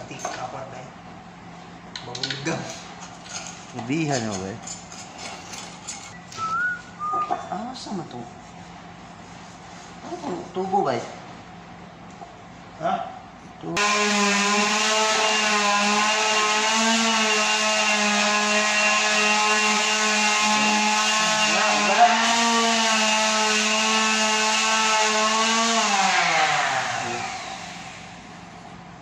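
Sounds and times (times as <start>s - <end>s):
high-speed motor whining: 13.8s - 28.2s.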